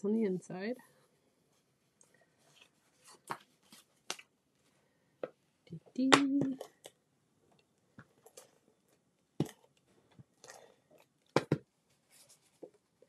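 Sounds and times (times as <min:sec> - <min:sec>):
soft paper rustle: 0:01.5 - 0:04.8, 0:11.8 - 0:13.0.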